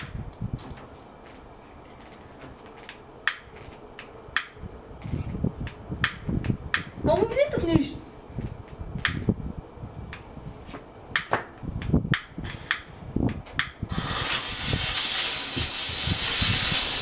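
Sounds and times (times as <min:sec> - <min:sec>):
fuse hissing: 0:13.6 - 0:17.0.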